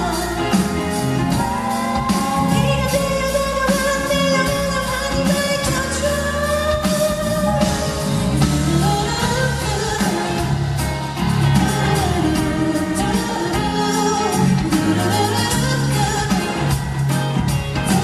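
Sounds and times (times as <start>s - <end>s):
backing music: 0.0s - 18.0s
woman singing into a microphone: 0.0s - 18.0s.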